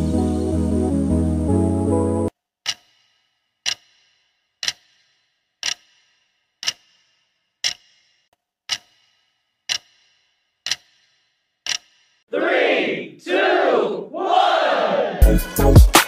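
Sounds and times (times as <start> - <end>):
clock ticking with short ring: 2.6 - 12.3
people shouting: 12.3 - 15.3.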